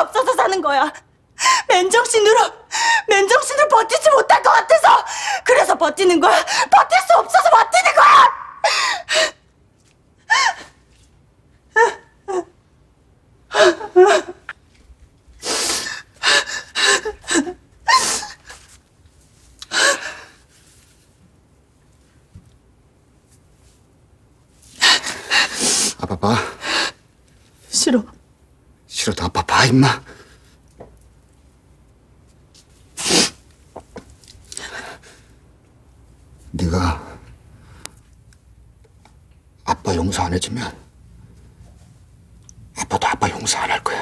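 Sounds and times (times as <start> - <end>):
person sobbing: 11.7 - 12.6, 13.5 - 14.6, 16.3 - 18.6.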